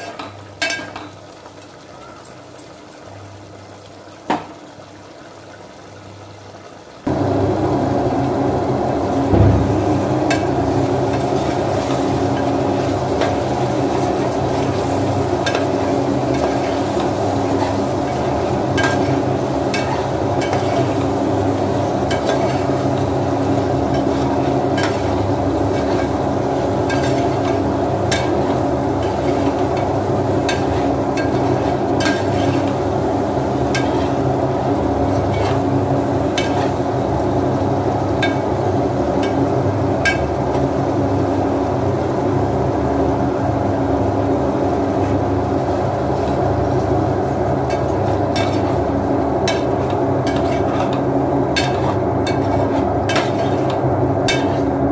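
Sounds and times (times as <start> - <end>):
steady low hum: 7.0 - 54.9
metal spoon scraping a pot: 50.3 - 51.0, 51.6 - 54.7.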